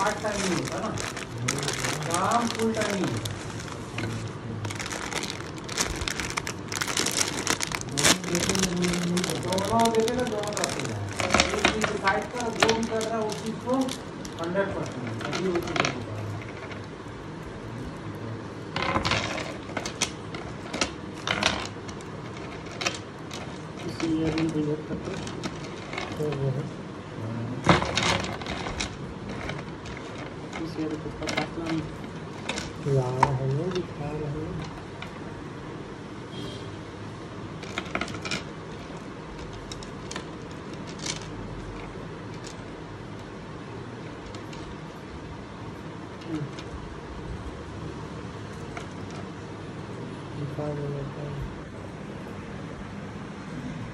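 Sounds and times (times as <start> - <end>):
packaging rustling: 0.0 - 16.1, 37.6 - 42.8
background hum: 0.0 - 53.9
small hard objects clicking: 4.7 - 16.1.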